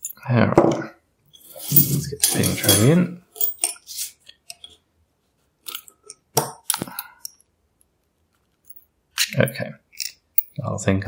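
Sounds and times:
padlock parts clicking and clinking: 8.5s - 10.6s.

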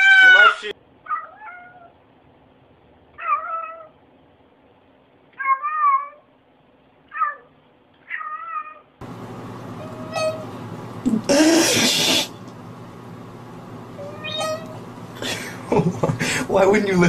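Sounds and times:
cat meowing: 0.0s - 2.0s, 3.1s - 4.0s, 5.3s - 6.3s, 7.1s - 8.9s, 9.8s - 10.4s, 14.0s - 14.8s.

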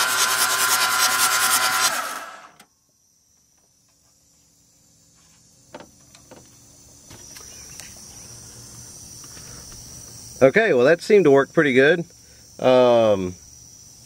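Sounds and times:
diesel engine cranking on starter: 0.0s - 2.6s
faint high-pitched chirr: 2.4s - 14.0s.

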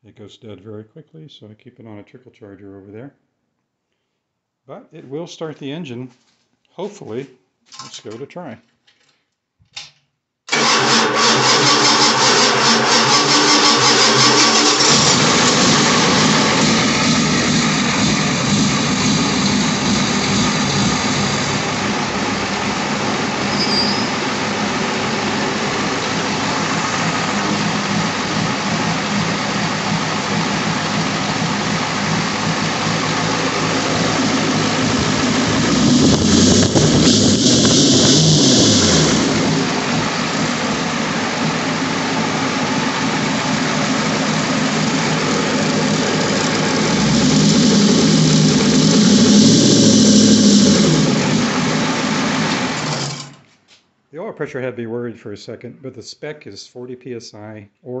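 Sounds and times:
diesel engine idling and revving: 10.5s - 53.4s.

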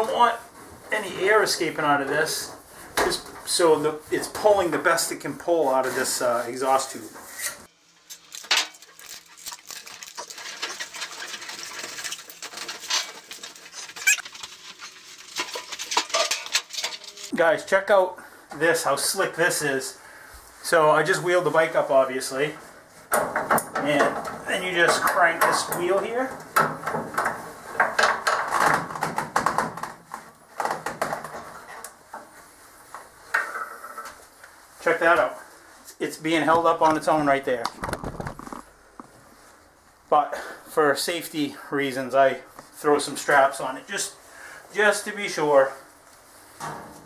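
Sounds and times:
foil tape and duct crinkling: 8.1s - 17.3s, 37.7s - 38.7s.

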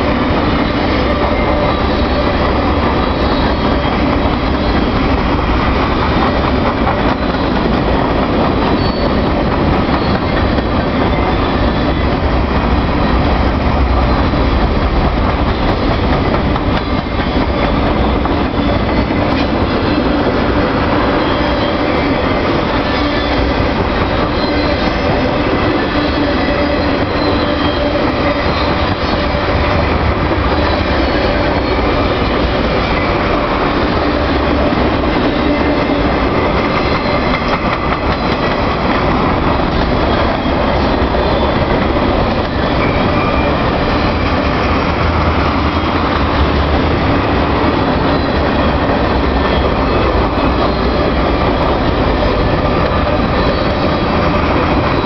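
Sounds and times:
train wheels rumbling on rails: 0.0s - 55.0s
high-pitched wheel squeal: 8.6s - 12.0s, 21.0s - 29.6s, 42.5s - 44.5s, 53.0s - 55.0s.

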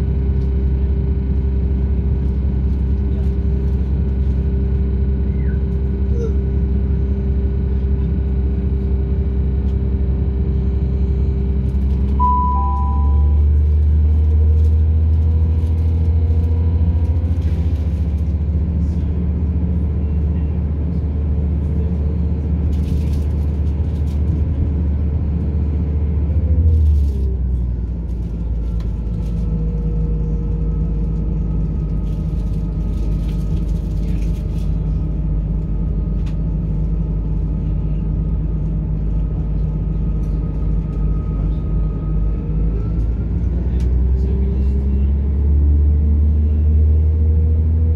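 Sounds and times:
train diesel engine droning: 0.0s - 47.9s
two-note beep: 12.2s - 13.5s.

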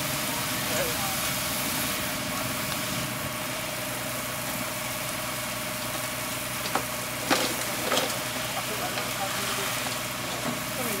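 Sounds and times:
pump motor whining: 3.8s - 11.0s.

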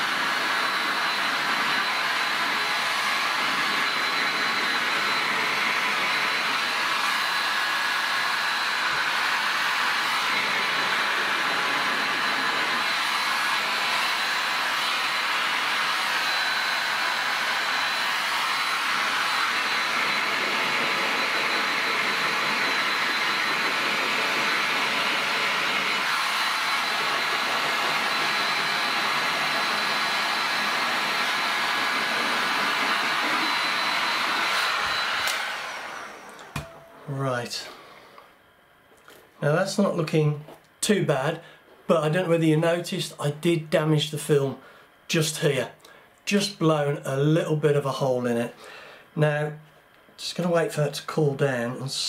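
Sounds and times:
heat gun blowing air: 0.0s - 38.4s.

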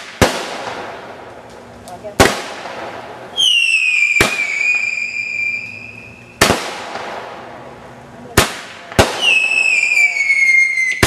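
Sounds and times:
firework bangs: 0.0s - 11.0s
firework whistle screeching: 3.4s - 6.4s, 9.2s - 11.0s.

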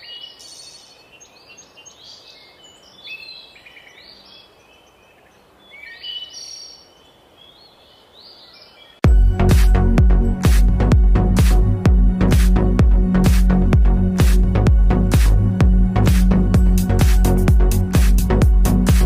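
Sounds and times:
birds chirping: 0.0s - 9.8s
electronic music with strong beat: 9.0s - 19.0s.

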